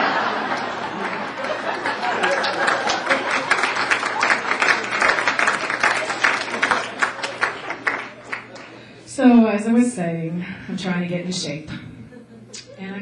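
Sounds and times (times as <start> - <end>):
audience clapping: 0.0 - 8.8
audience laughing: 0.0 - 8.8, 12.0 - 13.0.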